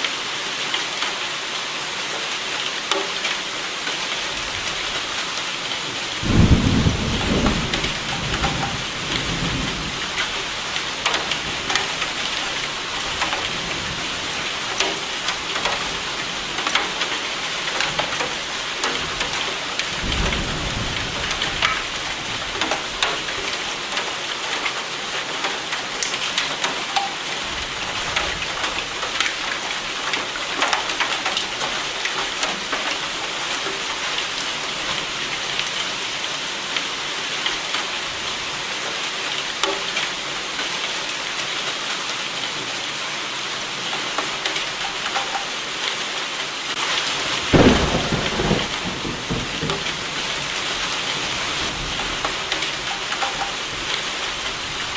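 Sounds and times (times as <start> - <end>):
rain pattering: 0.0 - 54.9
thunder crack: 6.2 - 8.6, 47.5 - 50.5.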